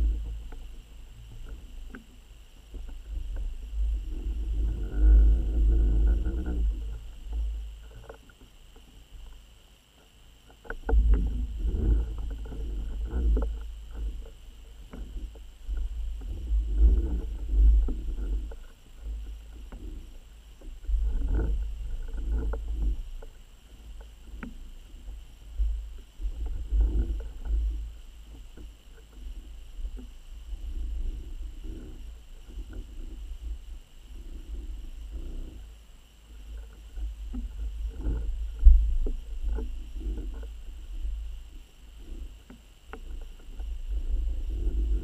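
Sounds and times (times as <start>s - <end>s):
underwater rumbling water movement: 0.0s - 45.0s
underwater clicks and knocks: 10.0s - 20.0s, 20.6s - 25.0s, 36.4s - 41.2s.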